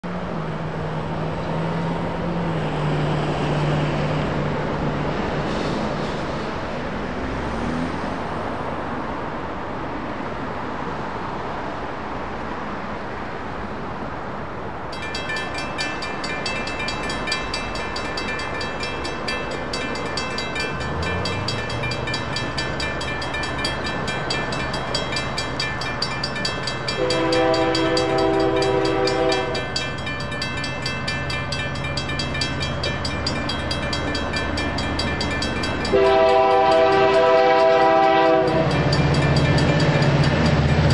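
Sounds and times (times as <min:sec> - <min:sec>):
road traffic: 0:00.0 - 0:40.9
railroad crossing bell ringing: 0:14.8 - 0:40.9
locomotive horn blast: 0:26.8 - 0:29.9, 0:35.8 - 0:39.0.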